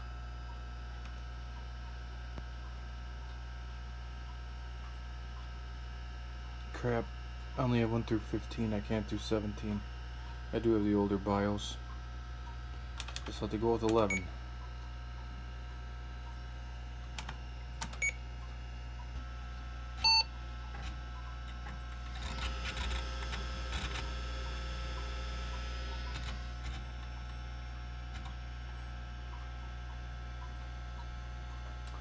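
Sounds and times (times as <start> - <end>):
computer fan hum: 0.0 - 32.0
hard drive chattering: 4.2 - 32.0
computer clicks: 11.9 - 14.0
short computer beep: 20.0 - 20.3.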